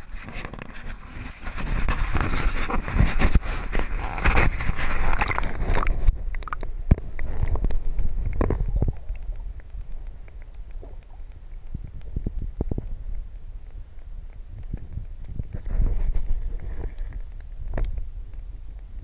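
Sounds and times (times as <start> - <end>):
water splashing and sloshing: 0.0 - 13.0
muffled underwater rumble: 0.0 - 19.0.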